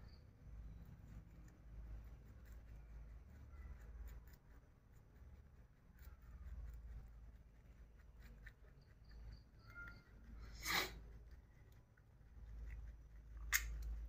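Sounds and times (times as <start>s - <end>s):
rabbits chewing grass: 0.0s - 14.0s
sharp click: 13.5s - 13.9s.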